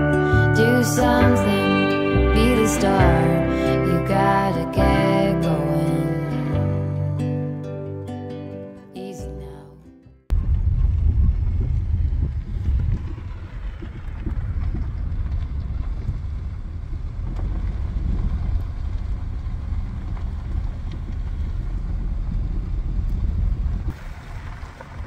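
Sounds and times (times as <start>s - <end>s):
car engine and tyres rumbling: 10.3s - 25.0s
wind buffeting microphone: 10.3s - 25.0s.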